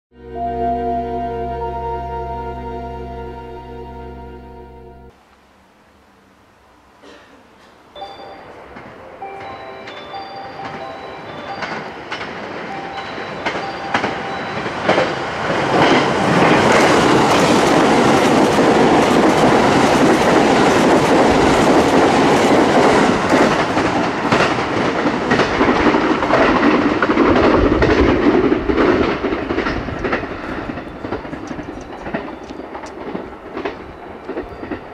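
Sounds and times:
train passing at speed: 0.3 - 34.9
rail-joint clicks: 7.6 - 34.9.

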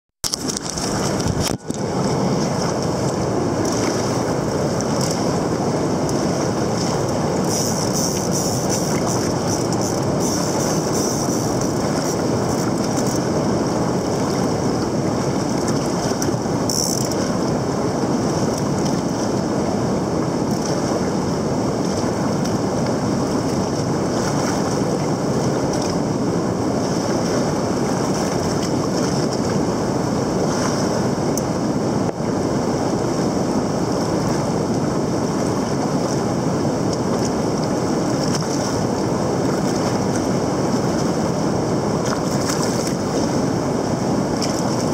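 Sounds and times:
river rapids rushing over rocks: 0.3 - 21.1.

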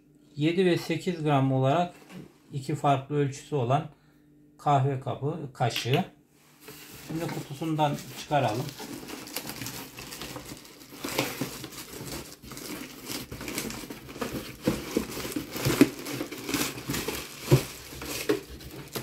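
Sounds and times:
cardboard box rustling: 6.6 - 19.0
plastic packaging crinkling: 6.7 - 19.0.

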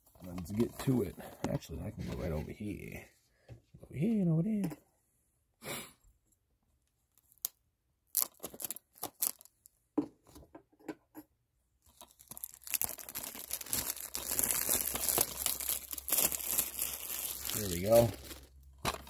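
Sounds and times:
packaging crinkling and tearing: 8.1 - 9.6, 11.9 - 19.0.

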